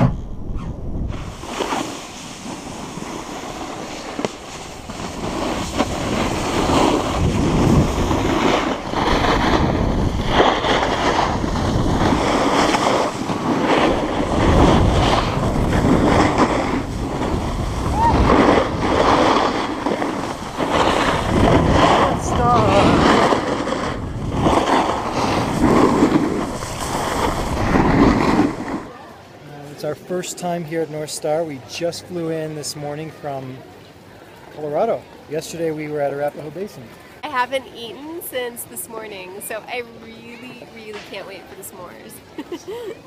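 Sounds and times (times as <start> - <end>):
wind rushing over microphone: 0.0 - 29.0
snowboards scraping over snow: 0.0 - 31.3.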